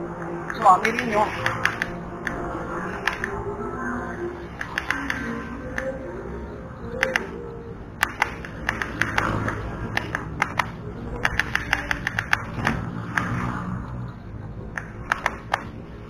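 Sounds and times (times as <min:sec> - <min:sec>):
faint music: 0:00.0 - 0:16.0
low steady background noise: 0:00.0 - 0:16.0
sharp irregular clicks: 0:00.2 - 0:03.4, 0:04.5 - 0:06.0, 0:06.9 - 0:07.4, 0:08.0 - 0:14.0, 0:14.7 - 0:15.8.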